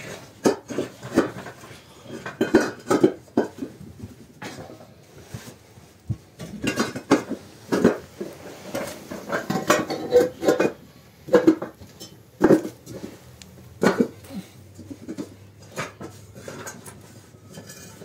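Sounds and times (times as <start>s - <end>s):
hollow bricks clinking together: 6.4s - 13.0s.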